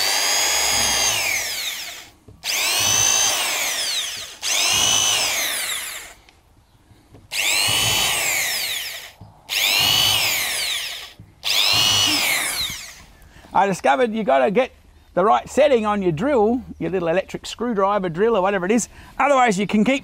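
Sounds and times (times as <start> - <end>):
electric drill whining: 0.0 - 6.3, 7.2 - 13.1.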